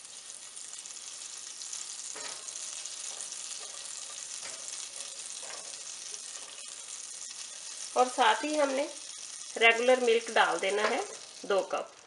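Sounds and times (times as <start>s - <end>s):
spatula strokes in a pan: 0.0s - 9.6s
butter sizzling in a pan: 0.0s - 12.0s.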